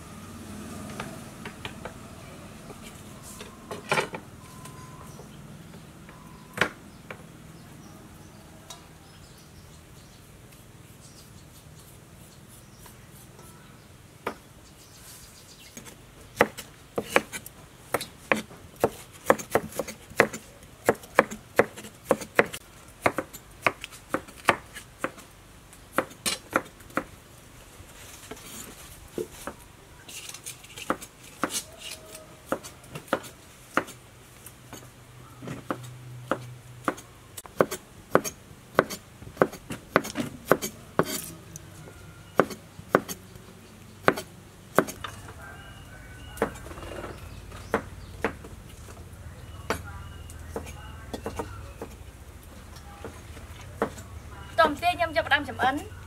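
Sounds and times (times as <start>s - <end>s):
knife chopping on wooden board: 16.4s - 25.2s, 25.9s - 27.1s, 30.8s - 31.7s, 32.5s - 34.0s, 35.5s - 41.3s, 42.4s - 43.2s, 44.0s - 45.1s, 47.6s - 48.6s.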